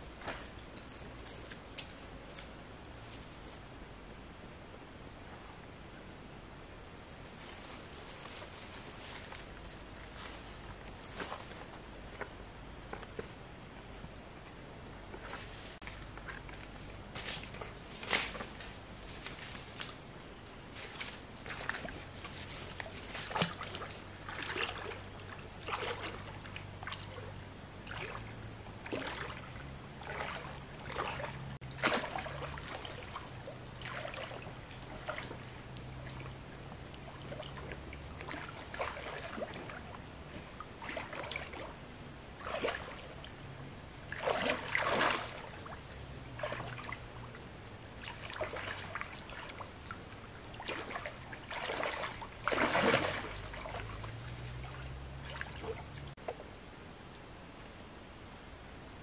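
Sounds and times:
water splashing and sloshing: 0.0 - 3.7, 7.3 - 14.1, 14.9 - 56.7
water trickling: 21.4 - 56.2.

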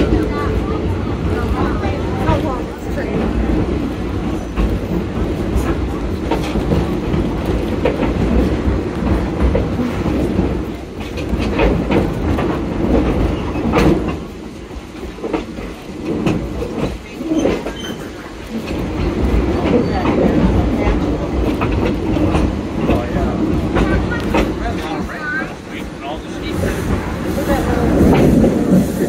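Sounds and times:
clacks over rail joints: 0.0 - 29.0
train wheels rumbling on rails: 0.0 - 29.0.

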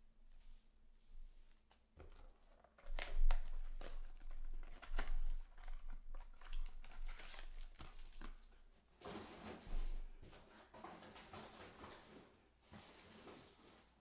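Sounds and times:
plastic shrink wrap crinkling and tearing: 2.2 - 9.7.

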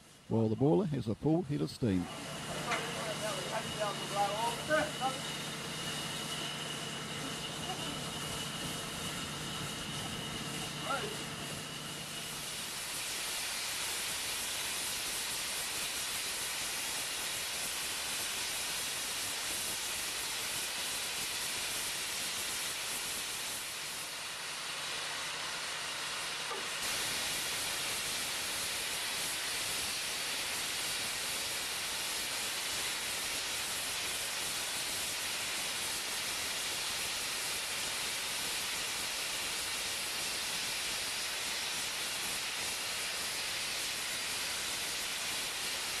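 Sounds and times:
steam hissing from safety valves: 0.0 - 46.0.

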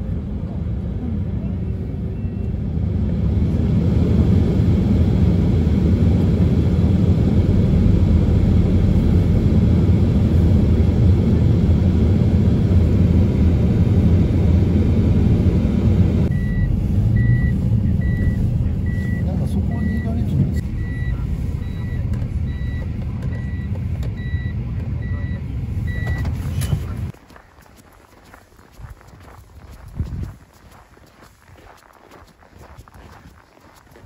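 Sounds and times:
car tyres and engine rumble: 0.0 - 34.0
reversing alarm beeping: 16.3 - 26.3.

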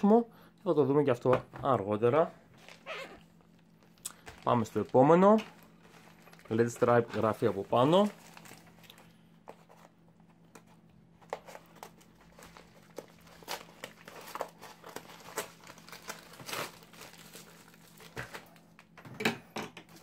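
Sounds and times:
plastic bag crinkling: 2.6 - 9.2, 11.3 - 19.0.

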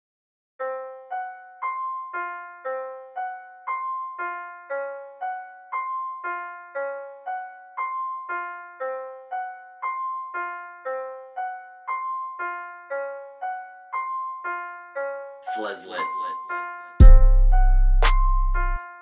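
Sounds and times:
repeating piano notes: 0.6 - 19.0.

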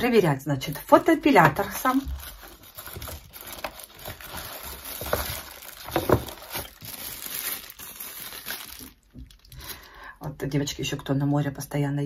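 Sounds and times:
paper wrapping rustling: 0.7 - 9.8
handling noises: 1.4 - 9.4.

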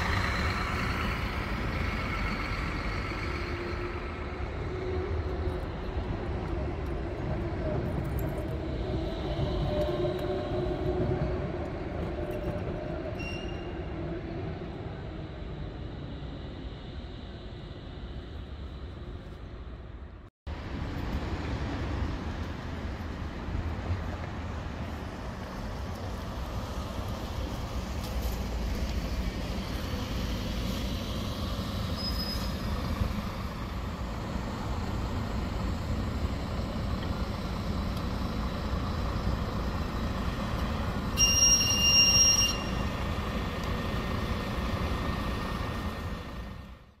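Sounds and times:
diesel bus engine rumble: 0.0 - 47.0
traffic noise: 0.0 - 47.0.

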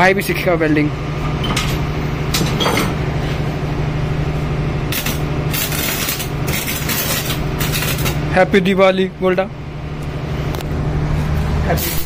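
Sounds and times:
steady low hum: 0.0 - 12.0
welding arc crackling and sizzling: 4.9 - 8.7.

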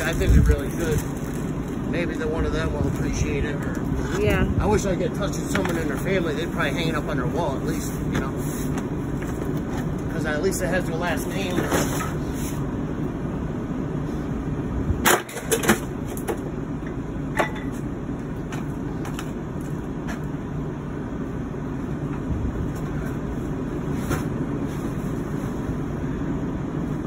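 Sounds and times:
steady low rumble: 0.0 - 27.0
objects knocking and clattering: 17.3 - 17.9.

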